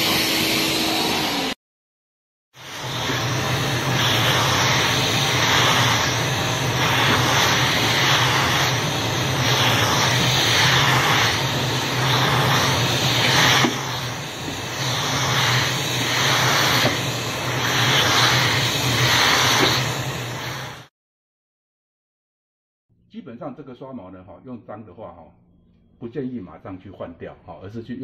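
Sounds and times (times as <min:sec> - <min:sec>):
vacuum cleaner suction hiss: 0:00.0 - 0:01.6, 0:02.6 - 0:20.9.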